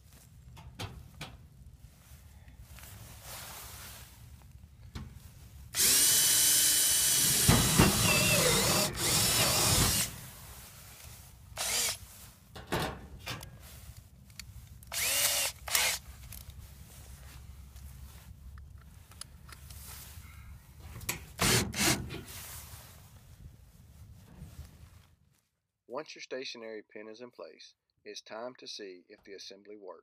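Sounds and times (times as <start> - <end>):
power drill boring sheet metal: 5.8 - 10.2, 11.6 - 12.1, 14.9 - 16.0, 21.4 - 22.3.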